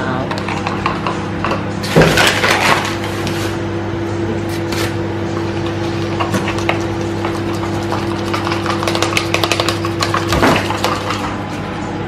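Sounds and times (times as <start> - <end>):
appliance electrical hum: 0.0 - 12.0
spoon stirring in plastic cup: 5.6 - 11.4.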